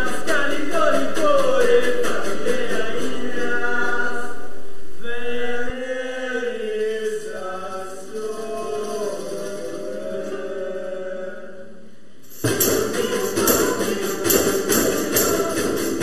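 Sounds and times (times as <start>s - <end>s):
voices singing chant-like melody: 0.0s - 16.0s.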